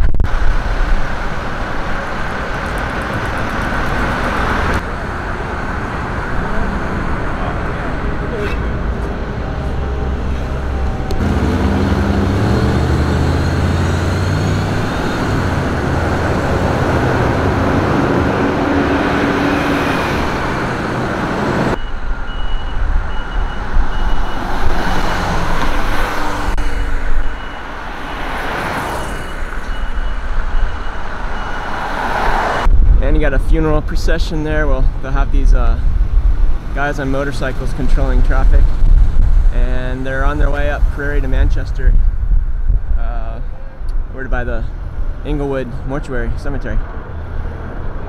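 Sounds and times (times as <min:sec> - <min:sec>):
traffic noise: 0:00.0 - 0:48.0
vehicle engine accelerating: 0:00.7 - 0:21.8
high beep: 0:21.8 - 0:24.5, 0:29.0 - 0:31.7.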